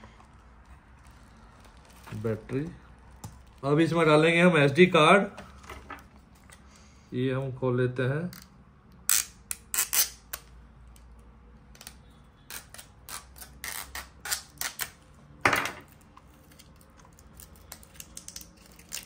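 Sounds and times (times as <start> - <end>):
plastic package being pried open: 15.9 - 19.0.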